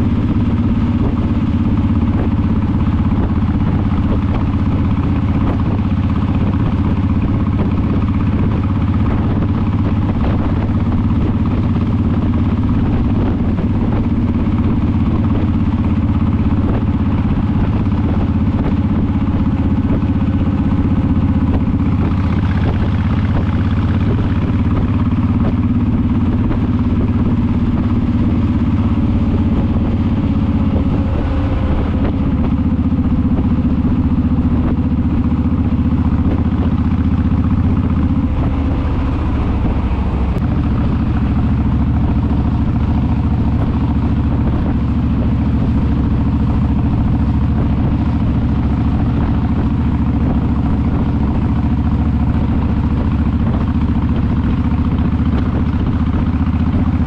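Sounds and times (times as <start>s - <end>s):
motorcycle engine running: 0.0s - 57.0s
road and wind noise: 0.0s - 57.0s.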